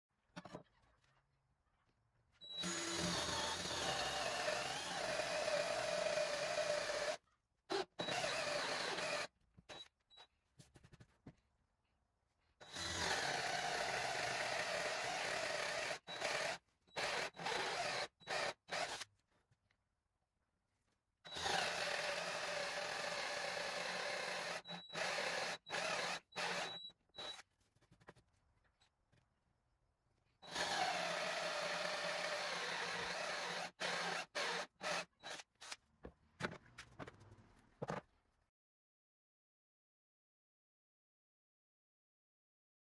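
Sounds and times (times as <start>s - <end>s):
cordless drill boring into wood: 2.5s - 9.3s, 12.6s - 19.1s, 21.3s - 27.4s, 30.4s - 35.8s.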